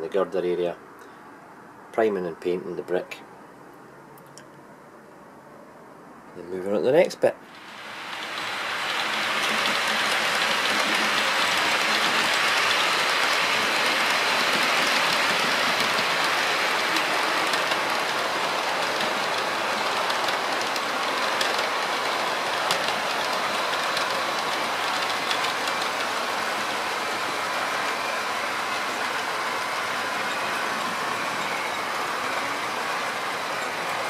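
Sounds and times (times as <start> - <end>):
model train wheels on rails: 7.4 - 34.0.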